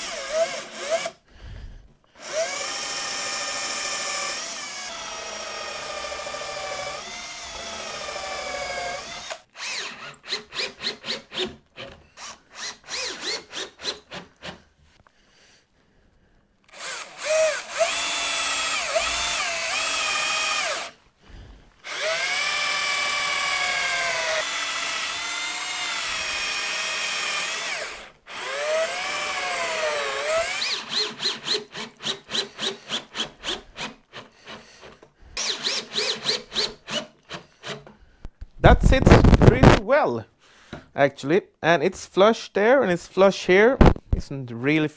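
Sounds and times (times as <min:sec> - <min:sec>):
cordless drill motor whining: 0:00.0 - 0:01.2, 0:02.2 - 0:13.9, 0:16.7 - 0:21.0, 0:21.8 - 0:37.9.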